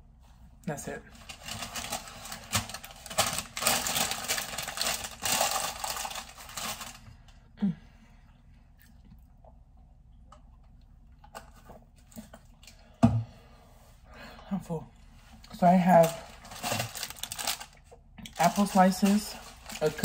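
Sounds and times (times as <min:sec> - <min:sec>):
food packaging crinkling: 0:01.1 - 0:07.4, 0:15.4 - 0:20.0.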